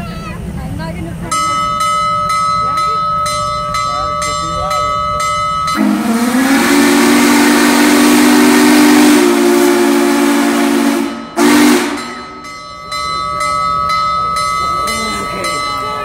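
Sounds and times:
locomotive bell ringing: 1.2 - 16.0
steam locomotive whistle chord: 4.3 - 12.6.

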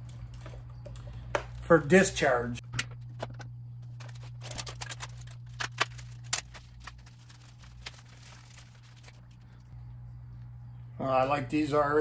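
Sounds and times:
steady low hum: 0.0 - 12.0
clicks and rustles of plastic parts: 2.7 - 9.6.

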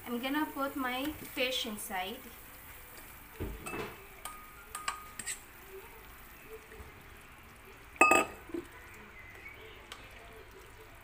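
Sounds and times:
soft stirring in broth: 2.2 - 11.0
spoon clinking on metal bowl: 3.7 - 5.4, 8.0 - 8.4.

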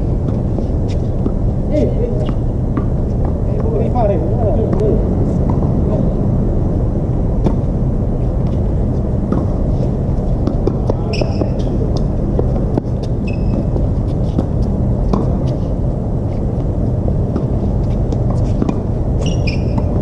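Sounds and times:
steady low rumble: 0.0 - 20.0
racket hitting tennis ball: 9.3 - 15.6
shoe squeaks: 11.0 - 11.8, 13.0 - 13.8, 19.2 - 20.0.

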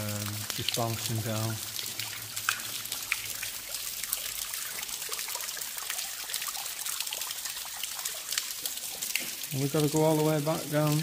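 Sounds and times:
water drips: 0.0 - 11.0
water trickling down a wall: 0.0 - 11.0.

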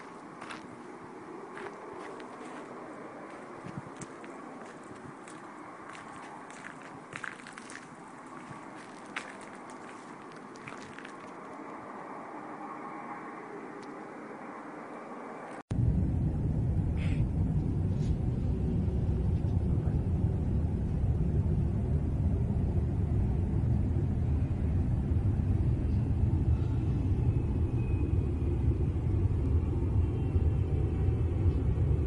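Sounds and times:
low rumbling drone: 15.7 - 32.0.

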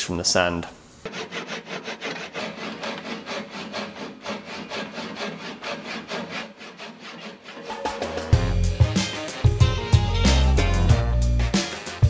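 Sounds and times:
handsaw cutting wood: 1.0 - 8.3.

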